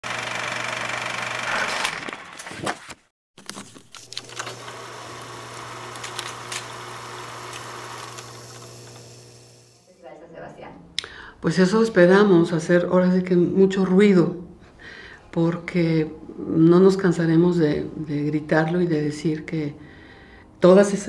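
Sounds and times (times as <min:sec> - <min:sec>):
film projector whirring: 0:00.0 - 0:02.5, 0:03.4 - 0:09.9.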